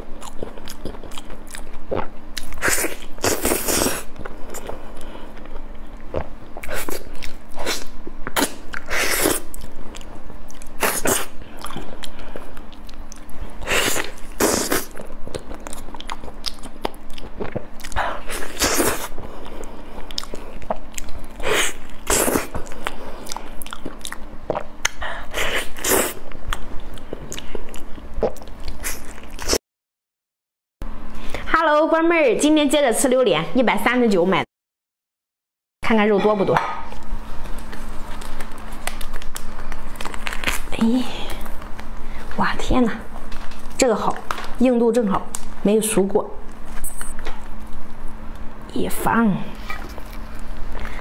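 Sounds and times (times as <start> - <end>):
wet chewing and smacking: 0.0 - 7.6, 8.2 - 25.0.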